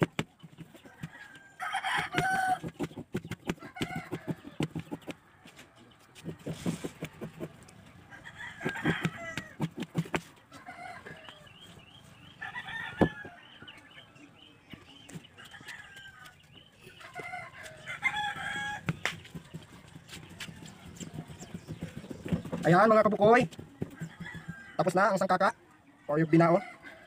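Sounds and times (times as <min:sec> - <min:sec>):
knife chopping on plastic tray: 0:08.6 - 0:10.3
chickens clucking: 0:12.8 - 0:27.0.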